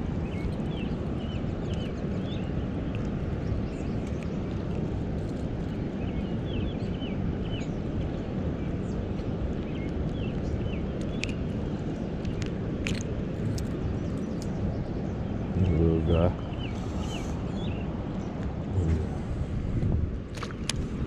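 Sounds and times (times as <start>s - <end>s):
small bird chirping: 0.2s - 4.7s, 9.6s - 19.1s.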